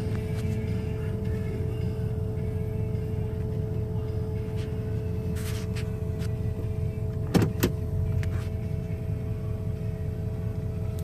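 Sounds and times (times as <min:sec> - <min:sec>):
car engine and tyres rumbling: 0:00.0 - 0:11.0
steady hum: 0:00.0 - 0:11.0.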